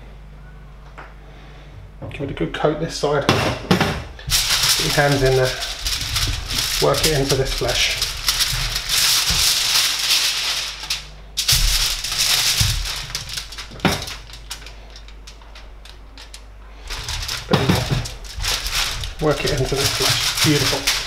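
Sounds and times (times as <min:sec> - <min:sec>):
aluminium foil crinkling: 0:04.2 - 0:21.0.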